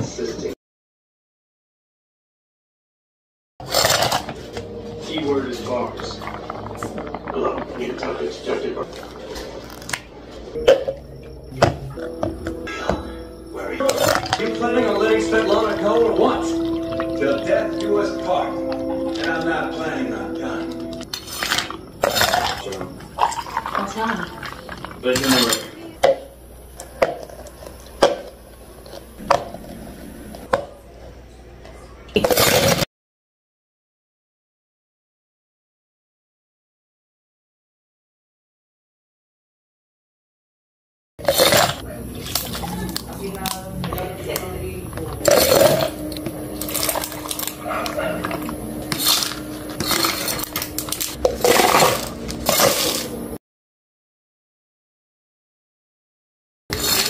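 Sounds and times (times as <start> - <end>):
ice cubes clattering in plastic cups: 13.8 - 18.0, 21.2 - 25.8, 41.2 - 53.2, 56.7 - 57.0.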